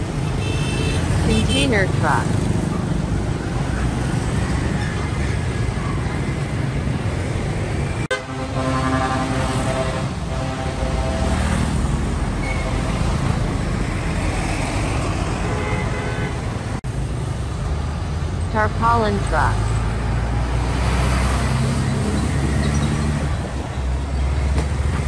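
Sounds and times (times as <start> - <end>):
heavy traffic rumble: 0.0 - 25.0
vehicle horn: 0.2 - 1.6, 8.1 - 11.8, 15.4 - 16.4.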